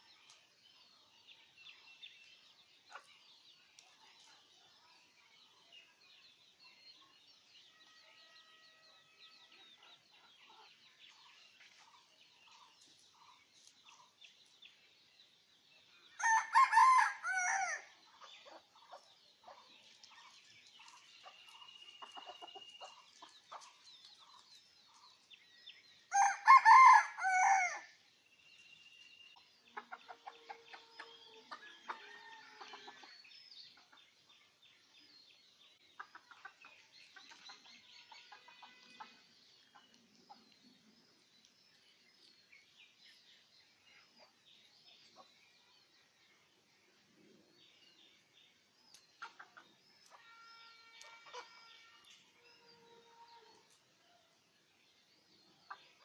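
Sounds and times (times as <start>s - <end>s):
rooster crowing: 16.2s - 17.8s, 26.1s - 27.9s.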